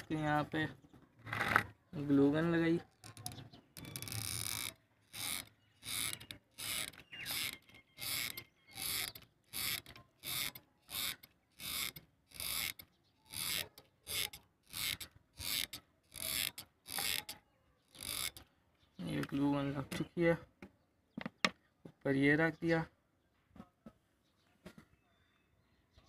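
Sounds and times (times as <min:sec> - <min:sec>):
glue gun ratcheting clicks: 0:02.8 - 0:18.5.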